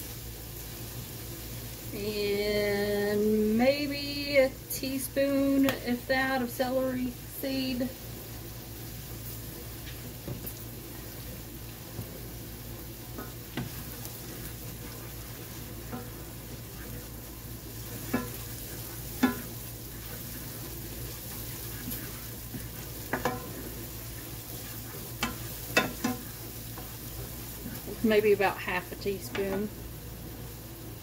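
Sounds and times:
vegetables sizzling in oil: 0:00.0 - 0:31.0
spoon stirring and scraping: 0:13.2 - 0:28.0
spoon knocking on pan: 0:18.0 - 0:18.5, 0:19.2 - 0:19.6, 0:22.5 - 0:23.6, 0:25.2 - 0:26.9.

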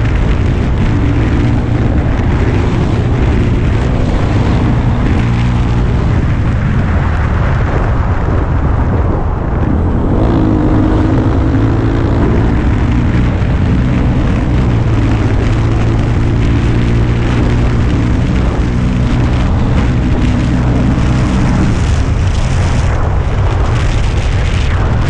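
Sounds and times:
motorcycle engine running: 0:00.0 - 0:25.0
wind rushing over microphone: 0:00.0 - 0:25.0.

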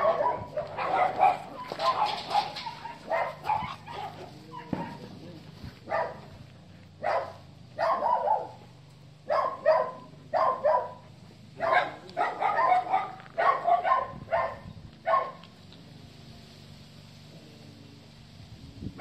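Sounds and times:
dog barking: 0:00.0 - 0:05.1, 0:05.9 - 0:06.3, 0:07.0 - 0:08.6, 0:09.2 - 0:15.4.

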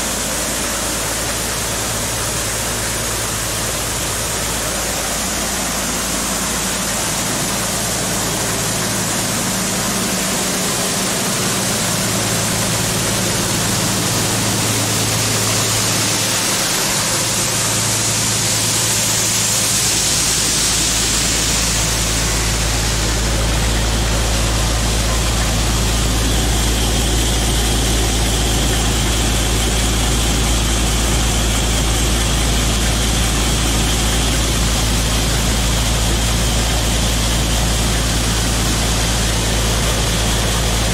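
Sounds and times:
diesel engine hum: 0:00.0 - 0:40.9
grain pouring: 0:00.0 - 0:40.9.

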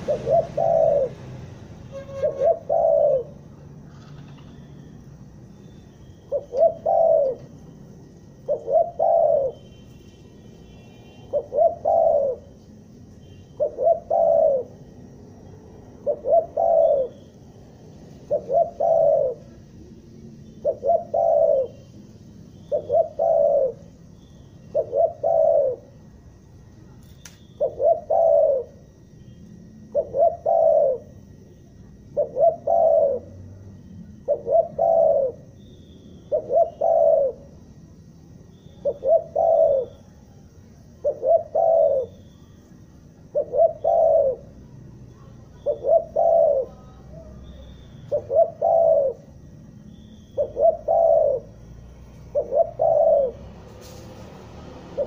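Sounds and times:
dove cooing: 0:00.0 - 0:04.7, 0:06.3 - 0:07.7, 0:08.3 - 0:09.6, 0:11.3 - 0:12.6, 0:13.6 - 0:14.9, 0:15.9 - 0:17.4, 0:18.1 - 0:19.7, 0:20.5 - 0:21.9, 0:22.6 - 0:26.0, 0:27.6 - 0:29.0, 0:29.6 - 0:31.4, 0:32.0 - 0:37.8, 0:38.5 - 0:42.4, 0:43.2 - 0:53.6.

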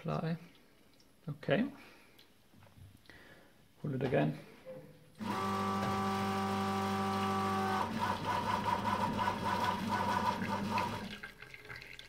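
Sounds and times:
espresso machine pump humming: 0:05.2 - 0:11.1
water running through coffee puck: 0:07.7 - 0:12.0.

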